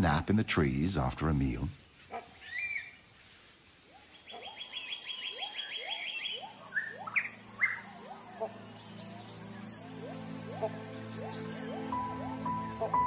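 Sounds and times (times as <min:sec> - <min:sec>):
sharp bird calls: 0:02.0 - 0:03.2, 0:03.8 - 0:13.0
short rising whistled bird notes: 0:04.1 - 0:13.0
high repeated bird notes: 0:04.9 - 0:13.0.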